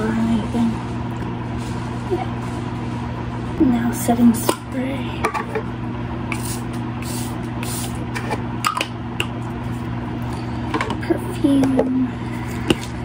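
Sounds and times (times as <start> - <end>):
spray bottle hissing: 6.3 - 8.0.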